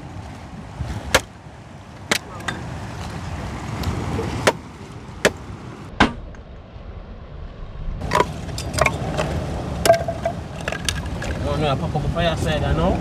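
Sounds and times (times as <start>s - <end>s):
surf: 0.0s - 13.0s
wind: 0.0s - 13.0s
sticks being chopped: 2.1s - 2.4s.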